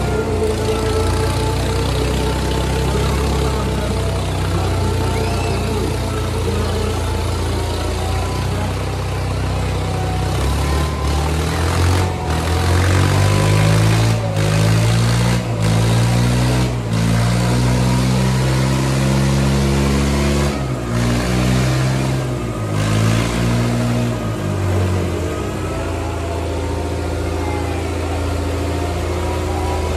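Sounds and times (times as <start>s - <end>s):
tractor diesel engines under load: 0.0s - 29.9s.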